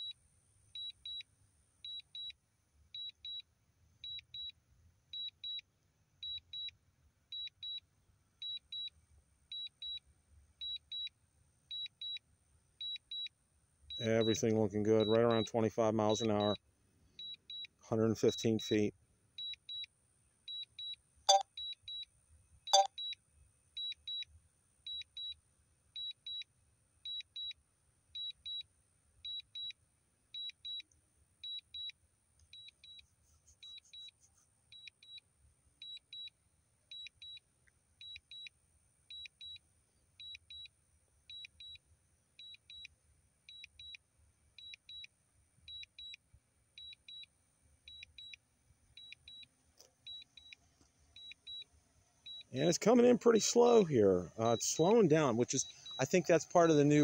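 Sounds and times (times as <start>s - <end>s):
short high beeps: 21.3s - 21.5s, 22.7s - 22.9s, 54.4s - 56.3s.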